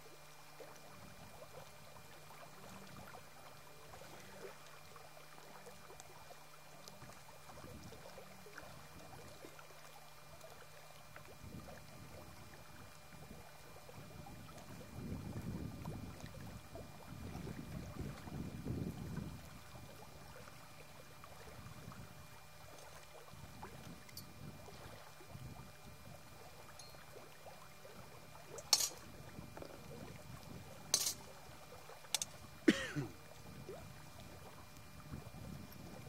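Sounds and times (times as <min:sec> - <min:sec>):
metal pots and lids clinking: 0:28.7 - 0:28.9, 0:31.0 - 0:31.2.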